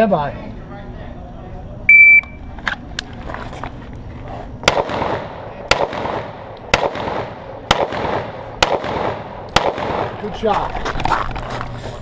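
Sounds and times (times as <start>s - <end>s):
pistol shots with echo: 4.6s - 10.3s.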